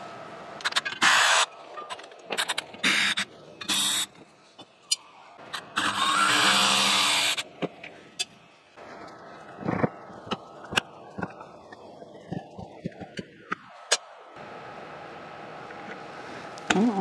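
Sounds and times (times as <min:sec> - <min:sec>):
rotary tool spinning: 0:05.5 - 0:07.4.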